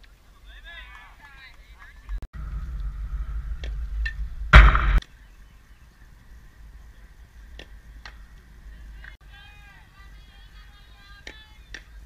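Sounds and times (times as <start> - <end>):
sharp knocks: 4.5 - 5.0.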